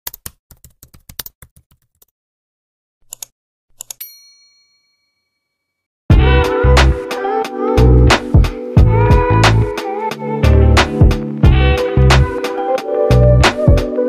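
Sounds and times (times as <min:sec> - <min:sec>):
keyboard typing clicks: 0:00.1 - 0:02.1
notification bell ding: 0:04.0 - 0:05.3
music with heavy bass beat: 0:06.1 - 0:14.0.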